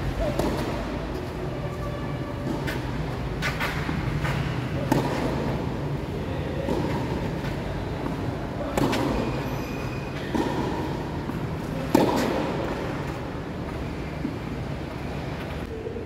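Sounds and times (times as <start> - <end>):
tennis ball hit by racket: 0.2 - 5.8, 6.5 - 9.4, 10.2 - 13.3.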